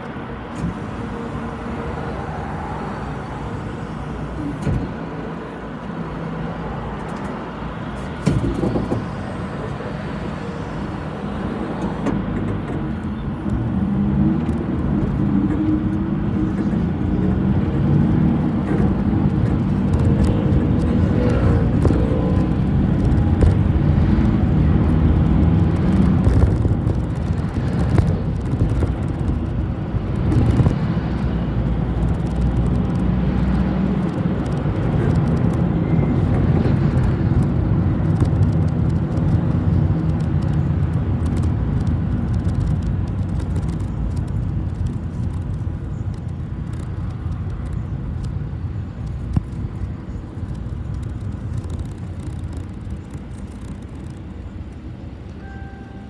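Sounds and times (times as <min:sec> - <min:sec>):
bus engine drone: 0:00.0 - 0:56.0
road rumble: 0:00.0 - 0:56.0
rattles and clicks: 0:14.3 - 0:55.6.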